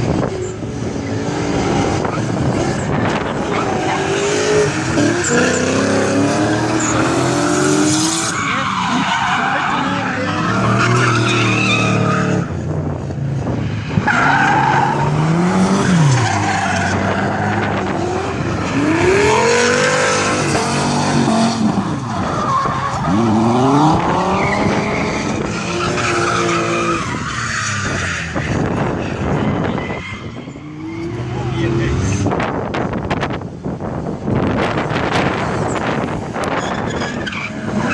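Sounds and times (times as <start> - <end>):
car engines revving hard: 0.0 - 37.9
tyre screech: 2.0 - 12.6, 36.5 - 37.9.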